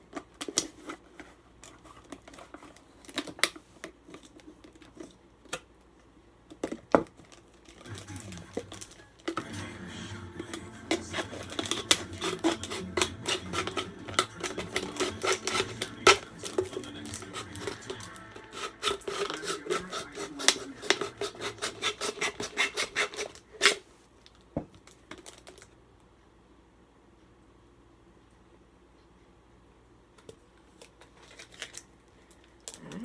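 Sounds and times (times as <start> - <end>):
knife sawing plastic bottle: 10.9 - 23.8.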